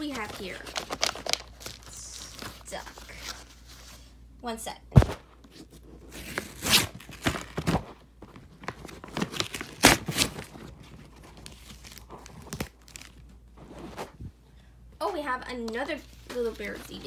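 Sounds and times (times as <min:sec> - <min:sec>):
paper tearing and crinkling: 0:00.1 - 0:03.4, 0:06.0 - 0:07.8, 0:08.6 - 0:14.1.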